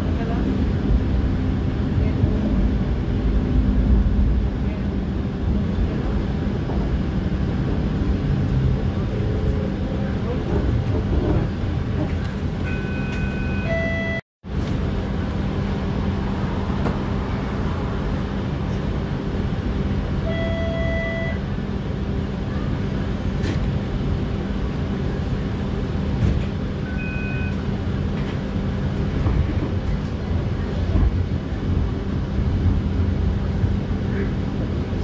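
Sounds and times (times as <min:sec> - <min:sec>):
streetcar motors and wheels humming: 0:00.0 - 0:35.0
short electronic beeps: 0:12.7 - 0:14.2, 0:26.9 - 0:27.6.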